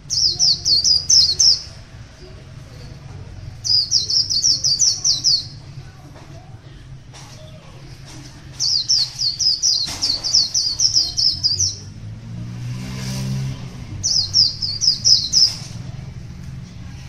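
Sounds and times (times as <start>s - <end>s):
bird twittering song: 0.0s - 5.7s, 8.4s - 12.1s, 14.0s - 16.0s.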